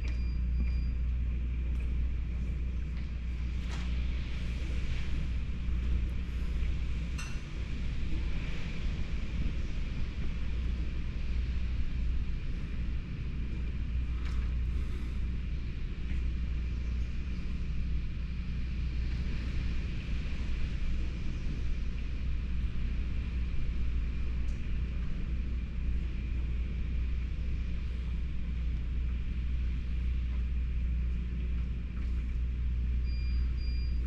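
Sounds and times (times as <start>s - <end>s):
faint high whine: 0.0s - 1.8s, 24.3s - 34.0s
gusting wind rumble: 0.0s - 34.0s.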